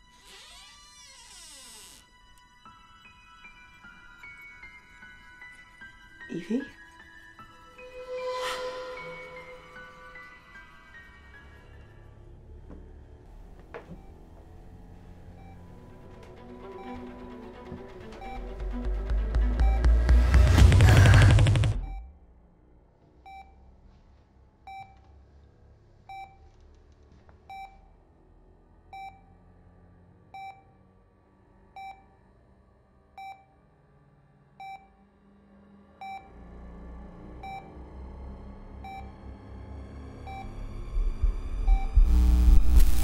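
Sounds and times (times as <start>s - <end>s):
music: 0.0s - 43.0s
faint rising tone: 7.4s - 12.4s
low hum: 7.5s - 11.0s, 38.0s - 43.0s
patient monitor beeping: 15.3s - 17.1s, 40.3s - 42.6s.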